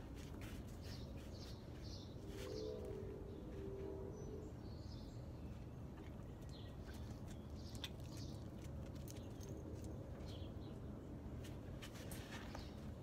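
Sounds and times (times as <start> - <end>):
birds chirping: 0.8 - 11.0.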